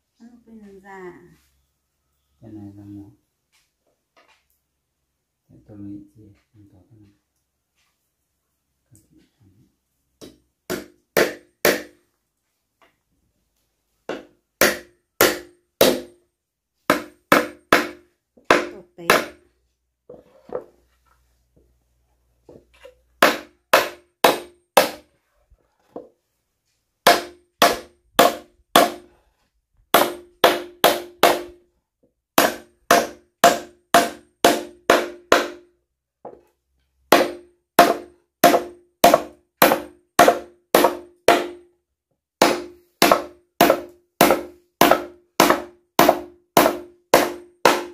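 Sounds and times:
hammer driving nails into wood: 0:10.2 - 0:12.0, 0:14.1 - 0:16.2, 0:16.9 - 0:19.4, 0:22.8 - 0:25.1, 0:27.0 - 0:29.1, 0:29.9 - 0:31.6, 0:32.4 - 0:35.7, 0:37.1 - 0:41.6, 0:42.4 - 0:47.9.

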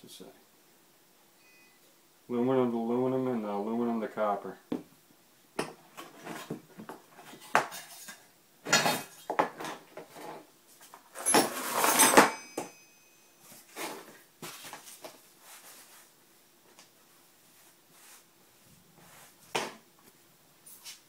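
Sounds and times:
metallic ring: 0:01.4 - 0:01.9, 0:11.2 - 0:13.5
metal hardware clattering on wood: 0:11.2 - 0:12.8.

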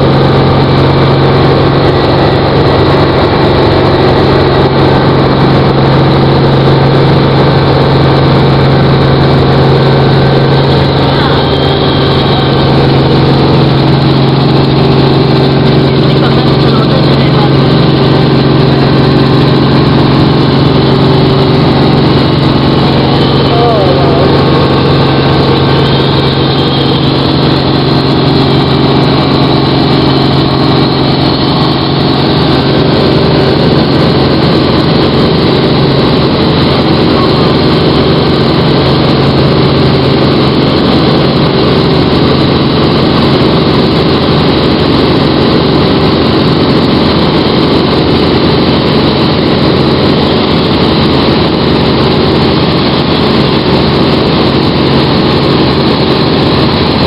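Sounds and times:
helicopter engine and rotor drone: 0:00.0 - 0:57.0.

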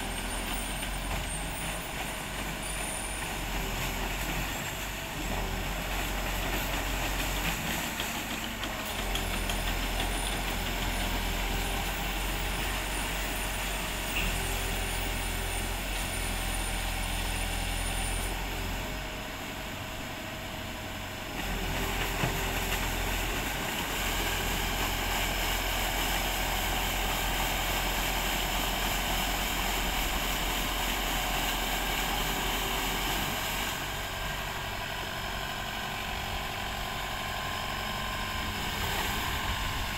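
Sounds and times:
boat engine humming: 0:28.5 - 0:39.9.

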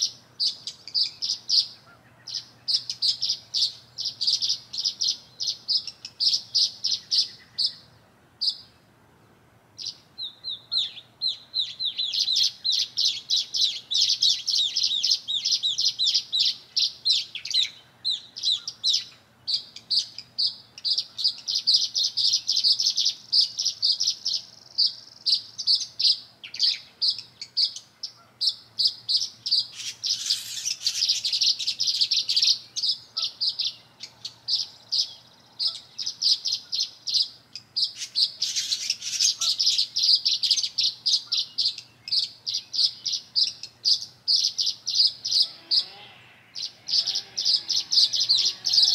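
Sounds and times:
songbirds chirping: 0:00.0 - 0:48.9.

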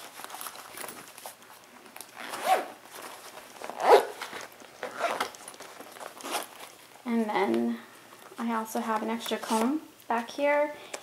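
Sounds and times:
zipper being pulled: 0:02.2 - 0:02.8, 0:03.6 - 0:05.4, 0:06.0 - 0:06.6.

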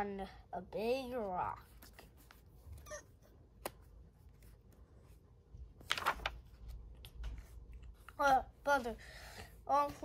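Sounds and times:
paper page turning: 0:05.7 - 0:08.2.

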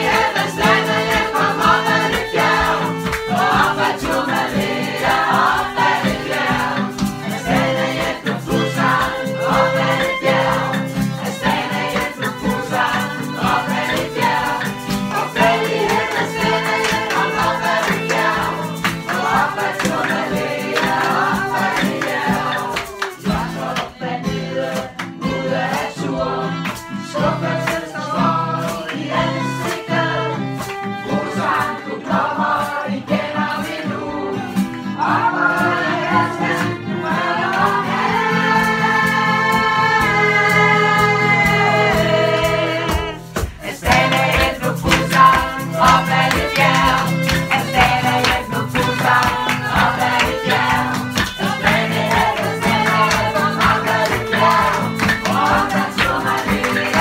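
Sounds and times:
acoustic guitar strumming: 0:00.0 - 0:57.0
group singing: 0:00.0 - 0:57.0.

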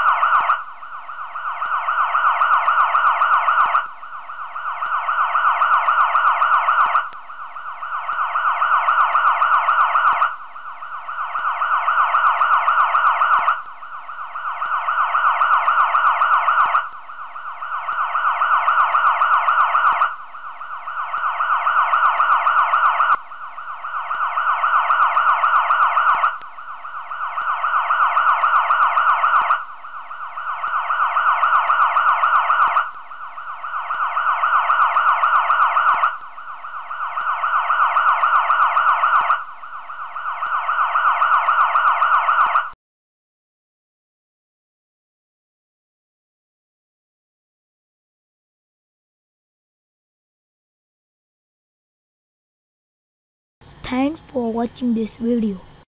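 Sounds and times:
electronic siren-like warbling tone: 0:00.0 - 0:42.8.

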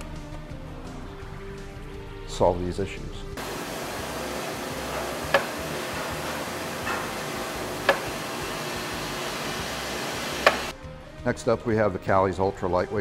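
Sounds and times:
steady hiss: 0:03.4 - 0:10.7.

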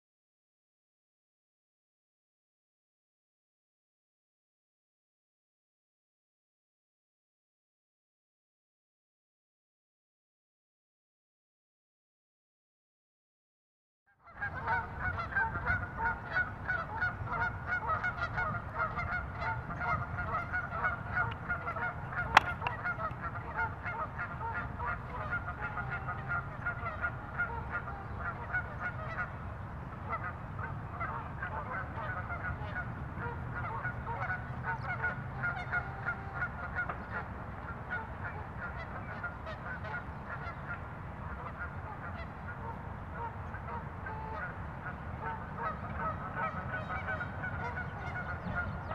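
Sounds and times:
birds honking: 0:14.4 - 0:29.3, 0:30.1 - 0:37.3, 0:41.4 - 0:48.9.

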